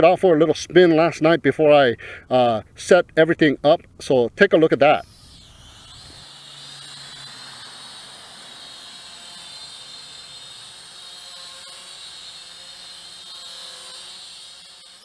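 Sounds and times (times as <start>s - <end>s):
toy drone motors whining: 4.8s - 15.0s.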